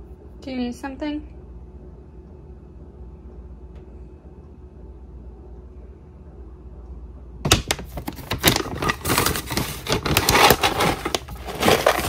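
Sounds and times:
plastic bags crinkling: 0:07.5 - 0:12.0.

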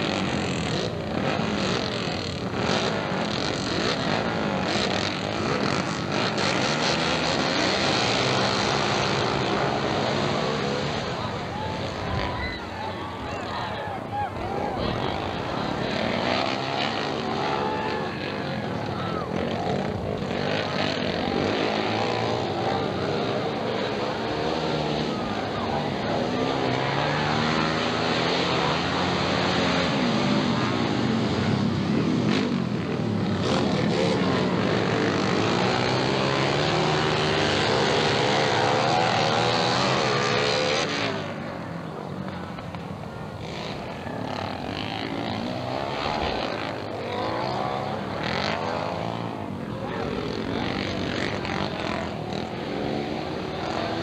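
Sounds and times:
motorcycle engines revving: 0:00.0 - 0:54.0.

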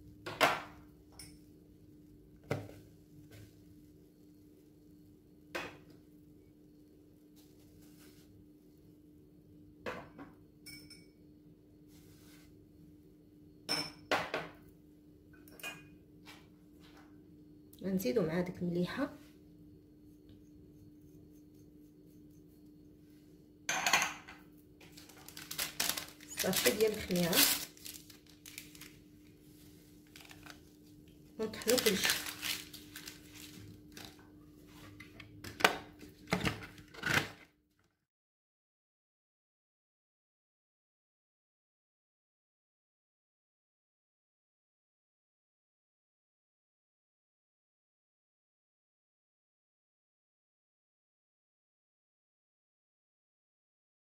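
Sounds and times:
faint steady hum: 0:00.0 - 0:36.8.

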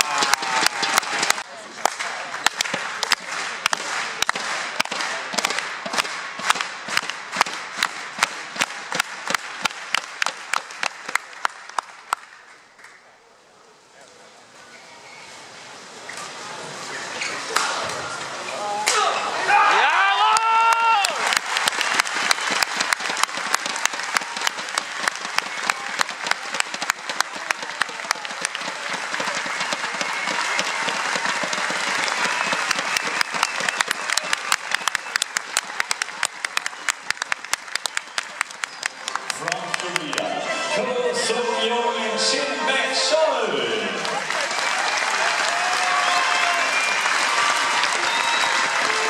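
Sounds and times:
crowd clapping in unison: 0:00.0 - 0:13.1, 0:20.2 - 0:40.4, 0:43.9 - 0:49.0
crowd noise: 0:00.0 - 0:49.0.

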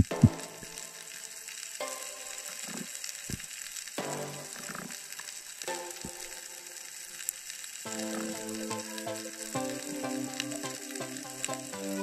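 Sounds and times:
underwater crackling hiss: 0:00.0 - 0:12.0
background music with held chords: 0:01.7 - 0:02.7, 0:04.0 - 0:04.7, 0:05.6 - 0:06.9, 0:07.9 - 0:12.0.

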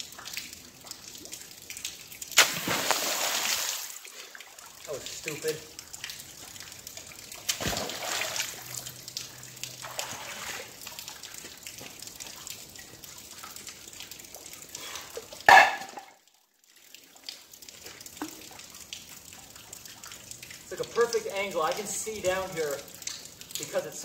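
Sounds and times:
river water flowing around rocks: 0:01.4 - 0:16.2.

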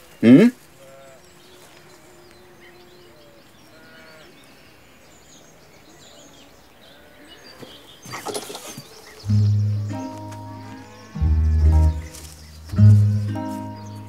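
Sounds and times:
farm animals calling: 0:00.0 - 0:05.1, 0:05.9 - 0:14.0
birds chirping: 0:00.0 - 0:14.0
rustling: 0:08.1 - 0:14.0.

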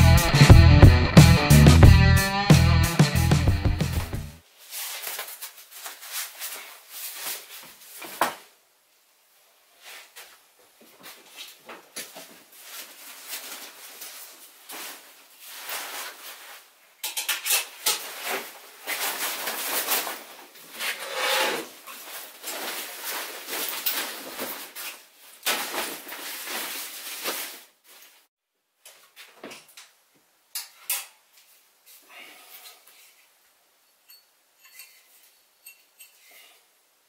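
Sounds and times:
fabric rustling: 0:18.0 - 0:21.0, 0:21.7 - 0:28.3.

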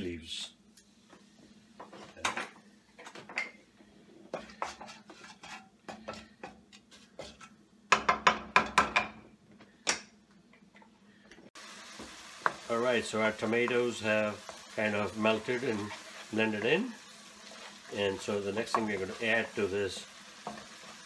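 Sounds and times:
wooden spatula knocking on pan: 0:07.9 - 0:09.2, 0:18.6 - 0:19.0.

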